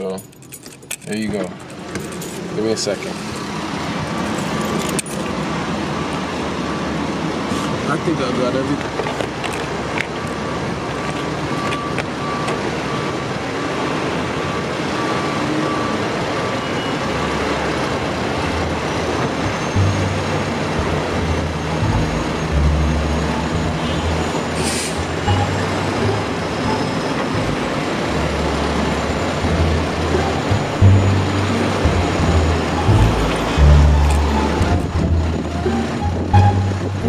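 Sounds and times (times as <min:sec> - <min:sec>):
traffic noise: 0:00.0 - 0:37.0
low bass notes: 0:18.3 - 0:37.0
short electronic beeps: 0:19.4 - 0:37.0.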